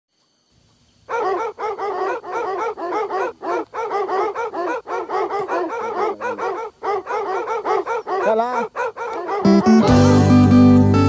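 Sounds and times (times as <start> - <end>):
dogs yelping rapidly: 1.1 - 9.8.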